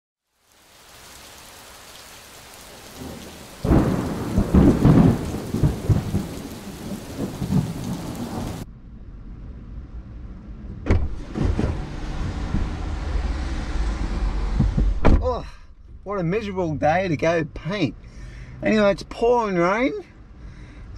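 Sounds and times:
steady rain: 0:00.2 - 0:08.7
rain heard inside a car: 0:00.3 - 0:08.6
rolls of thunder: 0:02.9 - 0:08.6
car door opening knock: 0:14.5 - 0:15.2.

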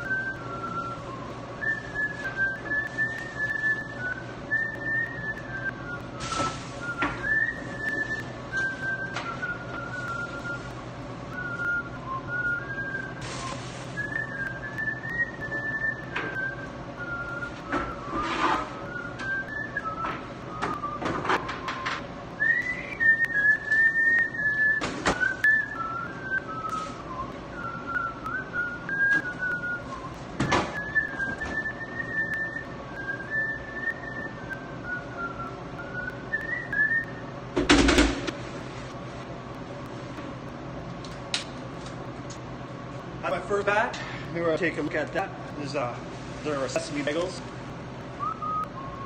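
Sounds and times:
man whistling a tune: 0:00.0 - 0:37.3, 0:48.2 - 0:49.0
steady low hum: 0:00.0 - 0:49.0.

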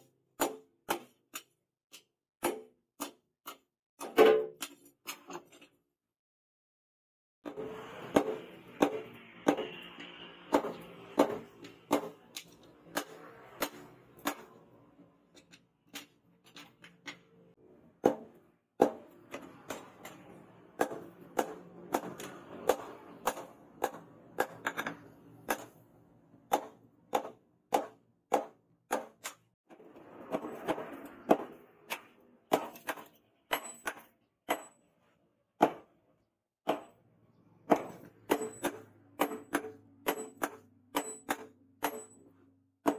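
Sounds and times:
hammer striking hot metal on anvil: 0:37.7 - 0:42.3.

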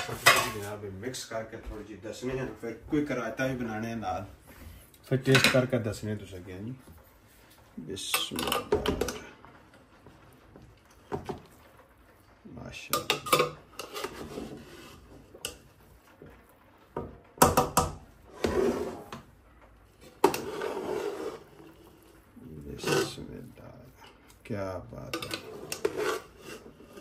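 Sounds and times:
spoon scraping a cooking pot: 0:12.9 - 0:15.7, 0:17.5 - 0:19.3, 0:19.9 - 0:24.4, 0:25.0 - 0:27.0.

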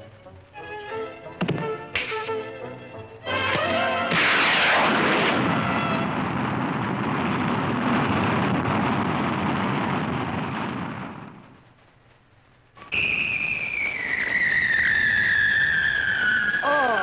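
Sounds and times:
cartoon rocket roar: 0:03.3 - 0:11.4, 0:13.0 - 0:17.0.

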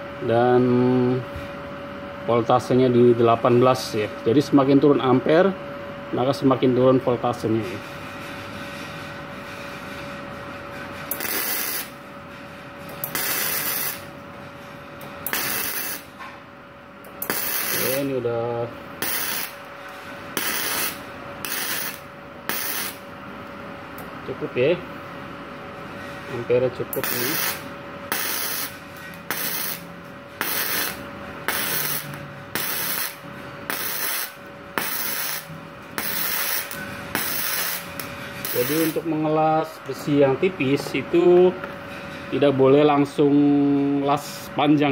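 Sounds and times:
steady hum: 0:00.0 - 0:44.9
welding arc crackling: 0:11.1 - 0:12.0, 0:12.9 - 0:14.2, 0:15.1 - 0:16.1, 0:17.1 - 0:18.2, 0:19.0 - 0:19.7, 0:20.3 - 0:23.0, 0:27.0 - 0:39.0.

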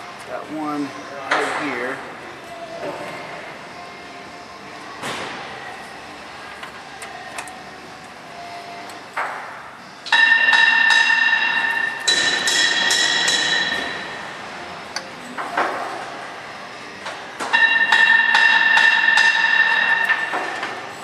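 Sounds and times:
tools clinking against metal: 0:10.1 - 0:14.1.

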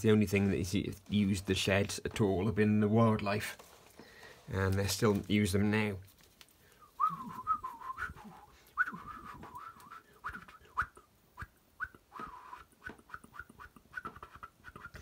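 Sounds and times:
person whistling birdsong: 0:06.8 - 0:15.0.

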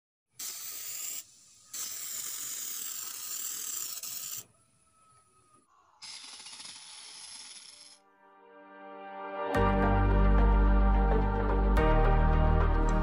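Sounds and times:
spray paint can hissing: 0:00.3 - 0:04.5, 0:06.0 - 0:08.0.

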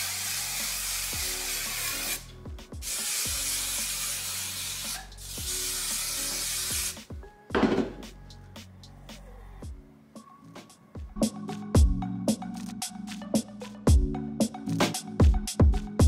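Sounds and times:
aerosol can spraying: 0:00.0 - 0:07.1.

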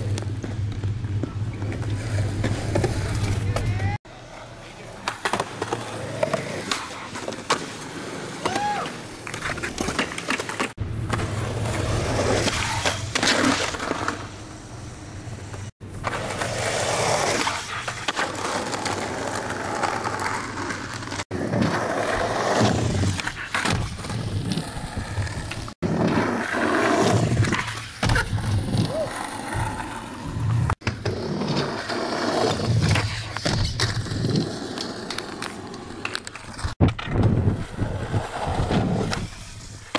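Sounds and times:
skateboard wheels rolling on concrete: 0:00.0 - 0:39.9
skateboard pops and landings: 0:25.4 - 0:39.9.

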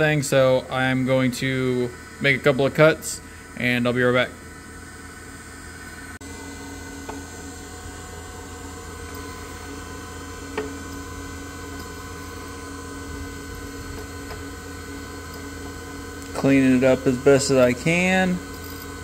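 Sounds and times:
key cutting machine motor: 0:06.2 - 0:19.0.

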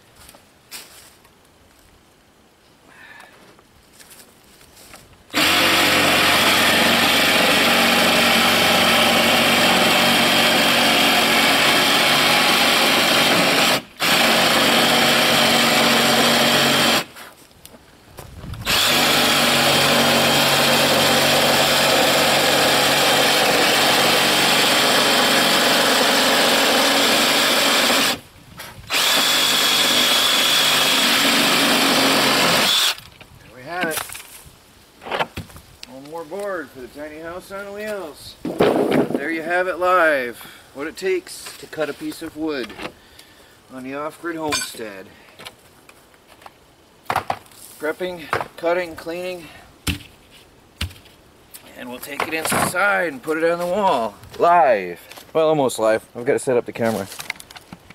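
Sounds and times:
cordless power tool running: 0:05.4 - 0:17.1, 0:18.6 - 0:28.2, 0:28.9 - 0:33.0.

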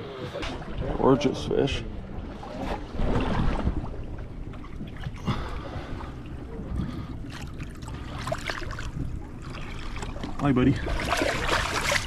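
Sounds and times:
water lapping against hull: 0:00.0 - 0:12.0
fish splashing into water: 0:10.8 - 0:12.0.

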